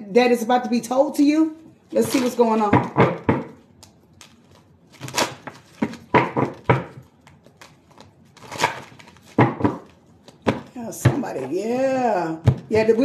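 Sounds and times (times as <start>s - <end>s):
cards being shuffled by hand: 3.6s - 10.6s.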